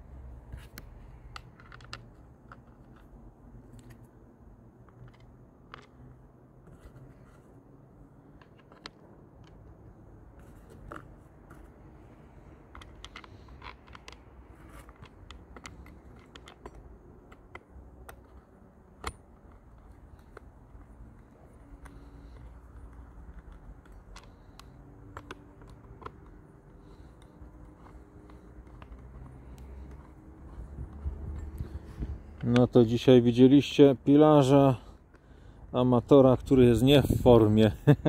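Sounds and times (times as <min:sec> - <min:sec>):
screwdriver clicking on plastic: 0:21.1 - 0:31.7.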